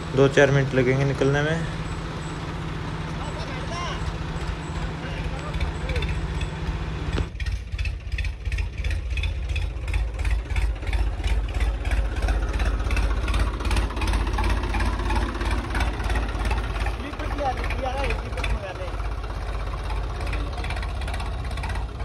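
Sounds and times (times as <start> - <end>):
tractor diesel engine rumbling: 0.0 - 22.0.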